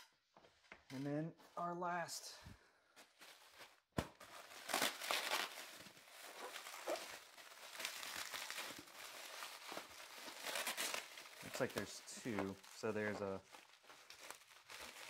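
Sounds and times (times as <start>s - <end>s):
bubble wrap crinkling: 3.0s - 15.0s
packing tape peeling: 4.5s - 12.6s.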